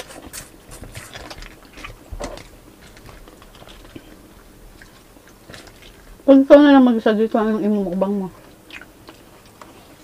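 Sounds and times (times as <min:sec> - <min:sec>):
chewing: 0:00.0 - 0:06.2, 0:08.4 - 0:10.0.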